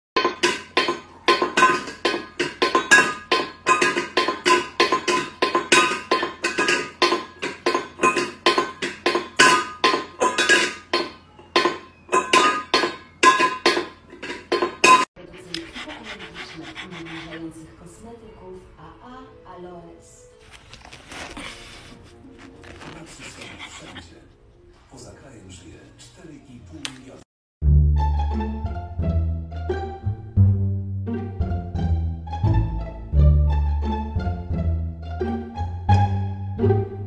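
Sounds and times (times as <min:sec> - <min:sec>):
metal bowl clanging on tile: 0:00.2 - 0:15.1.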